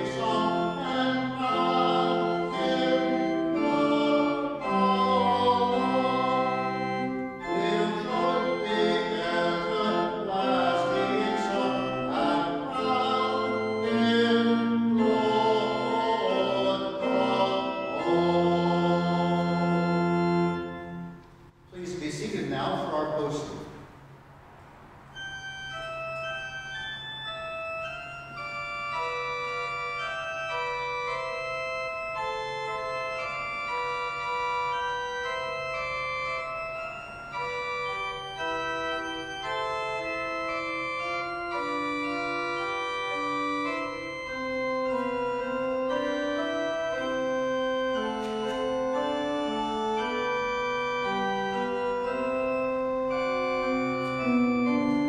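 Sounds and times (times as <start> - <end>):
organ playing chords: 0.0 - 55.0.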